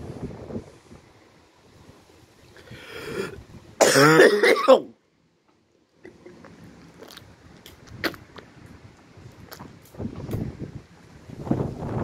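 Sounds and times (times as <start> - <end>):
faint wind noise: 0.0 - 4.7, 5.7 - 12.0
person clearing throat: 3.8 - 4.9.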